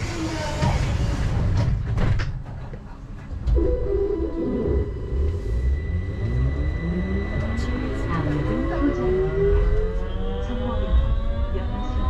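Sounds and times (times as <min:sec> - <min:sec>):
train low rumble: 0:00.0 - 0:12.0
rising motor whine: 0:03.7 - 0:12.0.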